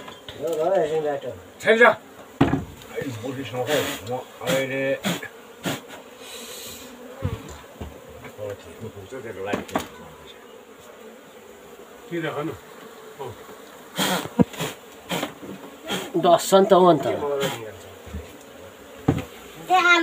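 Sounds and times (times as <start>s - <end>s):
bees buzzing: 0.0s - 20.0s
knocks and scrapes on wall: 7.2s - 8.4s, 19.0s - 19.4s.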